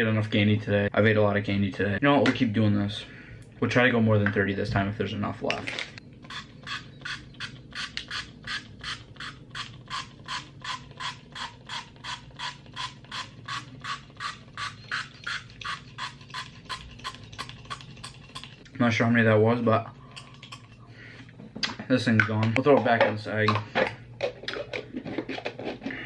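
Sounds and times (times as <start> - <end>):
spray bottle squirting: 6.3 - 18.6.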